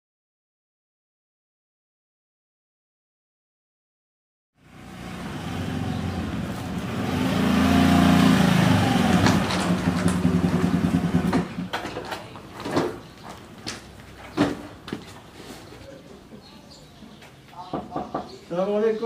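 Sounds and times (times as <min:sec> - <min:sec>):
vehicle engine running: 0:04.6 - 0:11.7.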